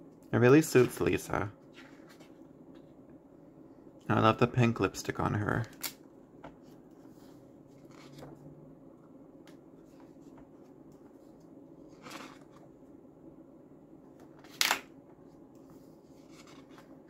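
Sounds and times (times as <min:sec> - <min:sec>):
pages turning: 0:07.7 - 0:08.4, 0:11.9 - 0:12.7, 0:16.2 - 0:17.0.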